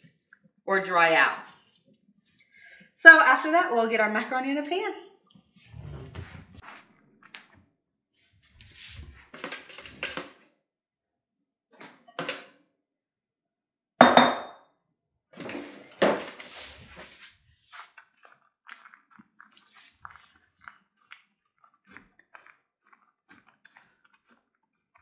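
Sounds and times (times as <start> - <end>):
kitchen scrapes and knocks: 15.4 - 16.9.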